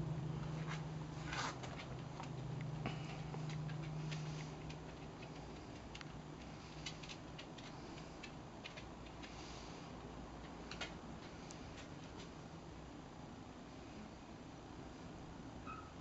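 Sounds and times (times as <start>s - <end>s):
faint light clicks and ticks: 1.8s - 12.4s.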